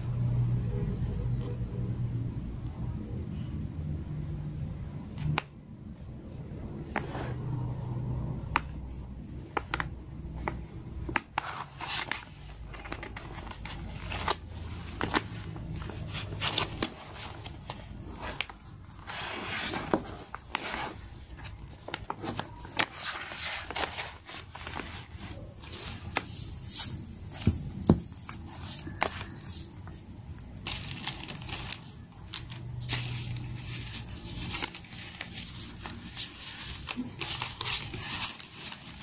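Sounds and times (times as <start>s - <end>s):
plastic pouch crinkling: 30.6s - 39.0s.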